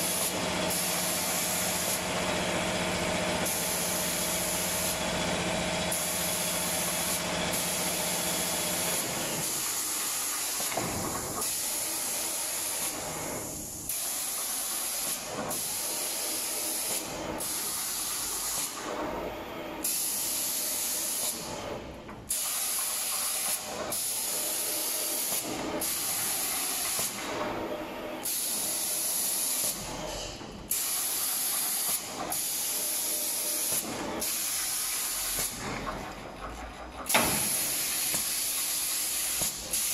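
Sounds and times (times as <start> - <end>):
spray guns hissing: 0.0 - 2.1, 3.4 - 5.0, 5.9 - 18.8, 22.3 - 27.3, 28.2 - 29.9, 30.7 - 35.6, 37.1 - 39.9.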